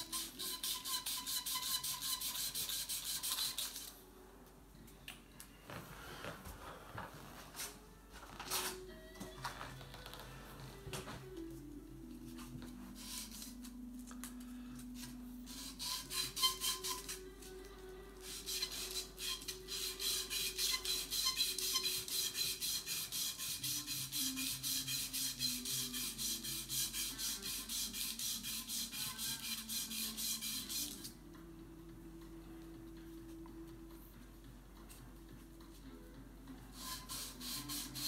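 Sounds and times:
sandpaper rubbing back and forth: 0.0 - 3.9, 15.5 - 17.2, 18.2 - 31.1, 36.8 - 38.0.

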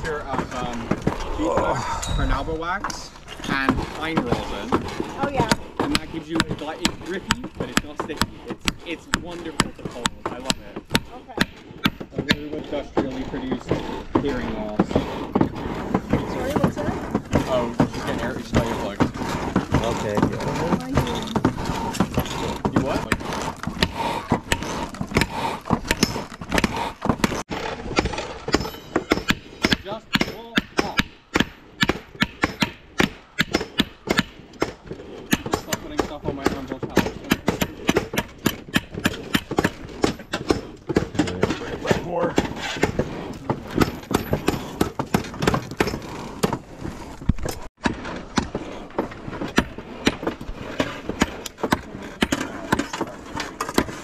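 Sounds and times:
hammer striking steel on anvil: 28.5 - 34.4.

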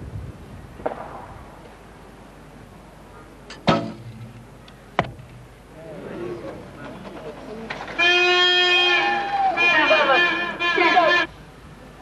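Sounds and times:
sharp crack: 0.8 - 1.4.

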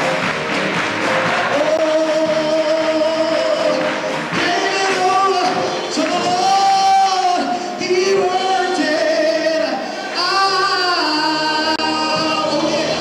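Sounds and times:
choir singing: 0.9 - 2.0, 8.5 - 13.0.

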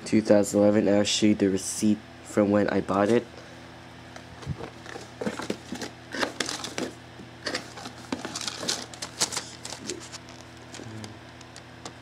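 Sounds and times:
paper receipt rustling: 4.8 - 11.6.

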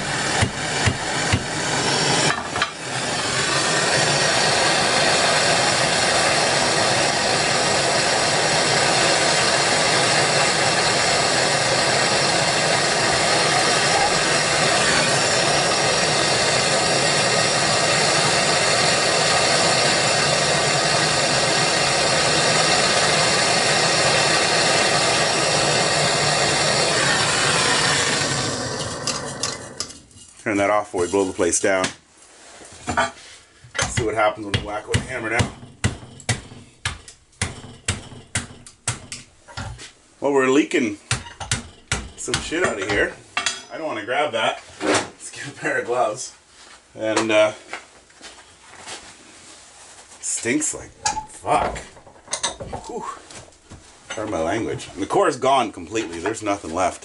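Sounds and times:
torch flame rushing: 0.0 - 31.3.

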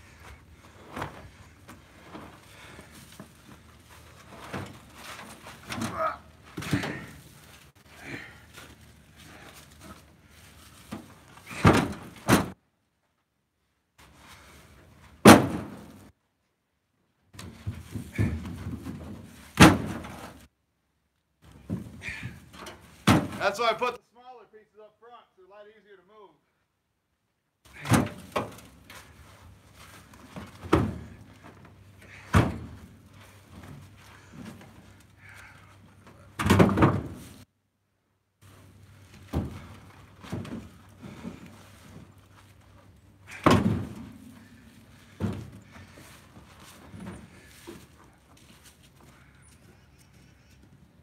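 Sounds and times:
firewood logs thudding and knocking: 0.1 - 12.6, 15.2 - 16.1, 17.4 - 20.5, 21.4 - 23.6, 27.7 - 37.4, 38.4 - 49.4
firewood thudding on truck bed: 4.4 - 7.2, 10.9 - 12.6, 15.2 - 16.1, 17.4 - 20.4, 23.0 - 23.4, 27.8 - 28.8, 30.2 - 31.2, 32.1 - 32.9, 36.4 - 37.3, 39.1 - 41.5, 43.3 - 46.0
sharp wood impacts: 10.9 - 12.6, 15.2 - 16.1, 17.4 - 20.4, 22.9 - 23.6, 30.1 - 31.3, 32.1 - 33.0, 36.4 - 37.4, 43.3 - 47.4.

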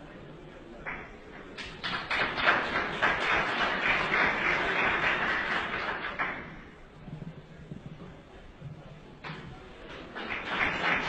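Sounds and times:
faint murmur of voices: 0.0 - 11.0
audience applauding: 0.8 - 6.8, 9.8 - 11.0.

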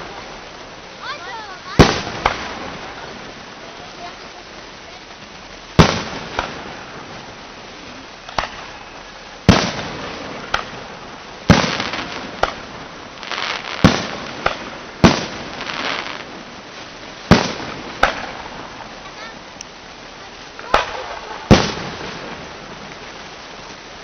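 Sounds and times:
firework crackling: 0.0 - 24.0
firework shells bursting: 8.2 - 16.4, 17.3 - 18.9.

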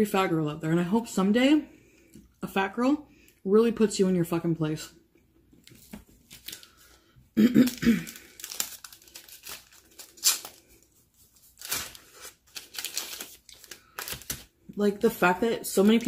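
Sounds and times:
paper wrapper crinkling and tearing: 5.7 - 14.7.

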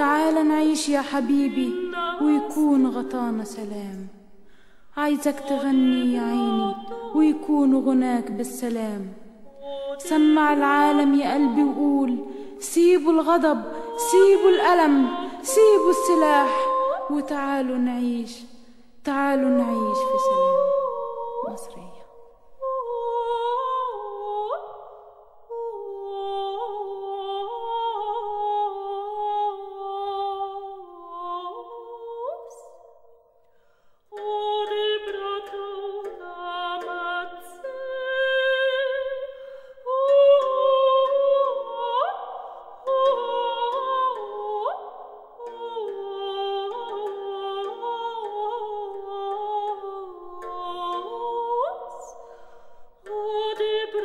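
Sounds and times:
hummed melody: 0.0 - 4.2, 5.0 - 32.8, 34.1 - 54.0.

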